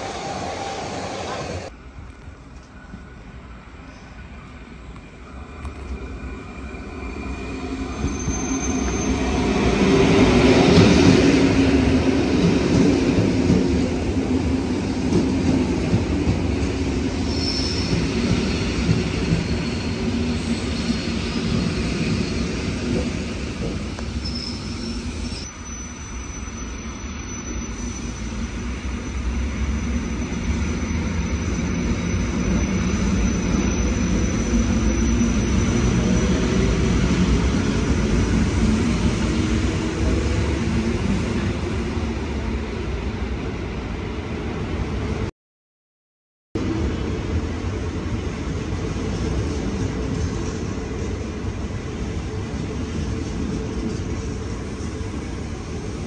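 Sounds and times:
electric train rumble: 0:00.0 - 0:45.2
wheel or brake squeals: 0:07.9 - 0:09.5, 0:17.3 - 0:22.6, 0:24.1 - 0:36.4.

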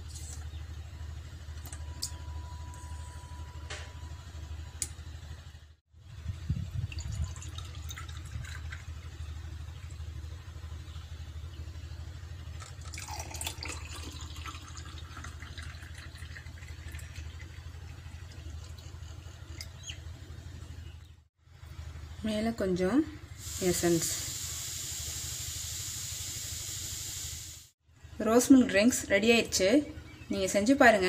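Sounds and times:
low hum: 0:00.0 - 0:31.0
liquid pouring into glass: 0:06.8 - 0:09.0, 0:12.6 - 0:19.2.

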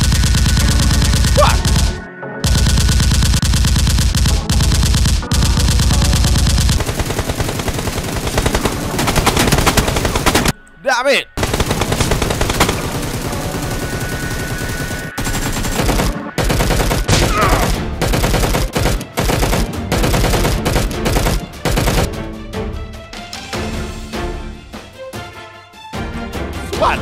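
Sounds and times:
automatic gunfire sound effects: 0:00.0 - 0:10.5, 0:11.4 - 0:22.1
music: 0:00.0 - 0:27.0.

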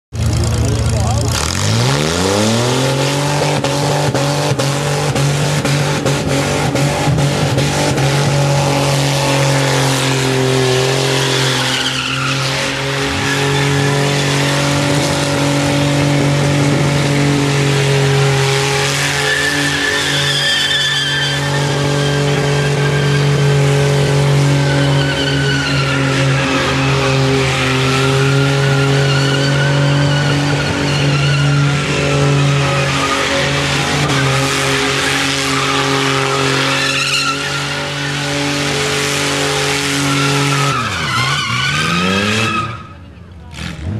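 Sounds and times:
car engine at steady revs: 0:00.1 - 0:11.8, 0:12.6 - 0:19.8
tyres squealing: 0:08.3 - 0:16.4, 0:17.5 - 0:43.2.

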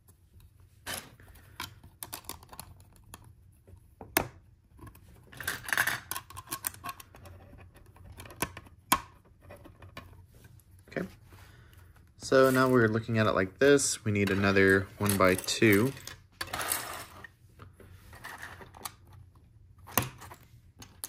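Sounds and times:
plastic pieces rattling: 0:05.2 - 0:07.1.

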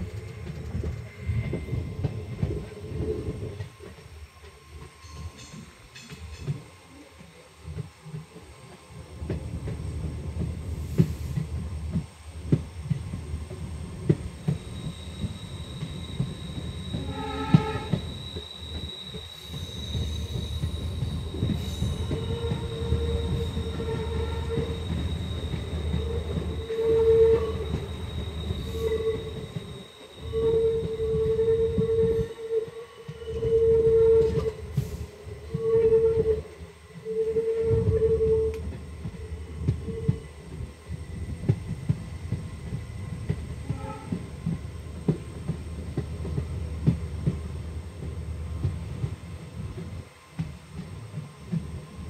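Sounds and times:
train rumbling over rail joints: 0:00.0 - 0:06.8, 0:07.7 - 0:52.0
wheel flange squeal: 0:14.5 - 0:34.6
locomotive horn: 0:17.0 - 0:18.0, 0:22.3 - 0:24.8, 0:26.7 - 0:27.7, 0:43.6 - 0:44.2.

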